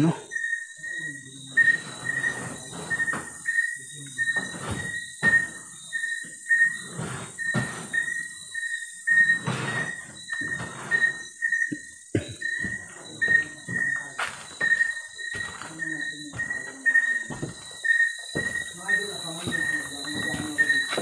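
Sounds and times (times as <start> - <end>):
high electronic beep: 9.1 - 21.0
scuffs and knocks: 9.2 - 21.0.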